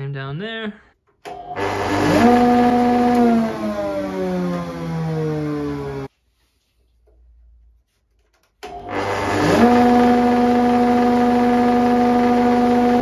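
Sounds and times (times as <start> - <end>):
planer thicknesser whining: 1.3 - 6.1, 8.7 - 13.0.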